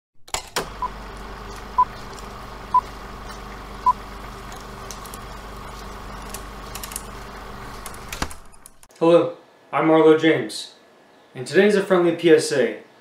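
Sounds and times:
film projector whir: 0.4s - 8.9s
film crackle and clicks: 0.6s - 8.9s.

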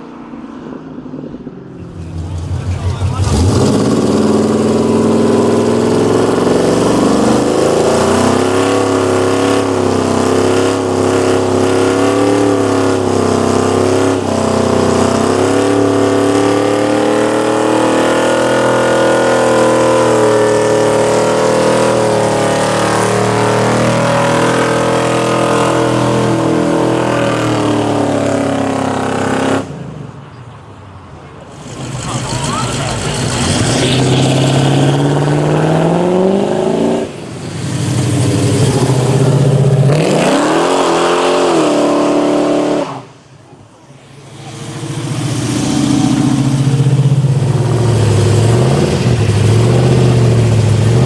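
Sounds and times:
car engine at high revs: 0.0s - 30.2s, 31.5s - 51.0s
rushing noise: 31.4s - 51.0s.

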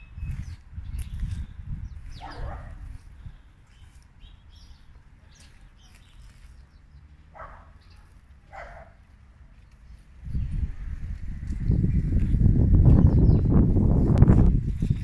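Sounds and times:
dog barking: 2.2s - 2.9s, 7.3s - 9.0s.

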